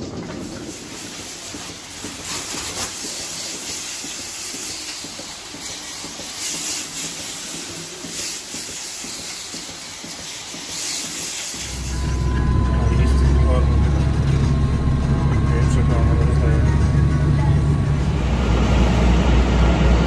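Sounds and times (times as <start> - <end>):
milking equipment hissing: 0.0 - 12.3
loud low rumble: 11.7 - 20.0.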